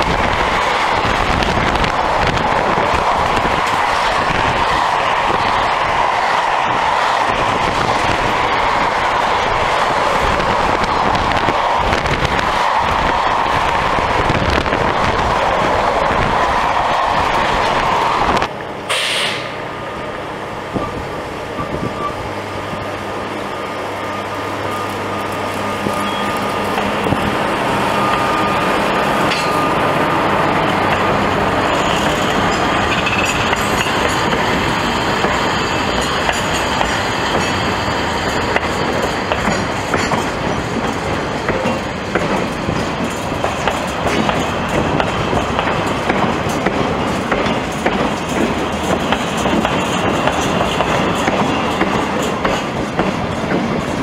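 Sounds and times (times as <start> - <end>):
electric locomotive hum: 0.0 - 54.0
train wheels clicking over rail joints: 25.3 - 54.0.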